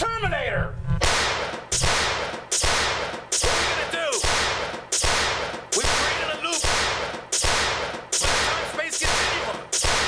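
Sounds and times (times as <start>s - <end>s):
gunshots: 1.0s - 10.0s.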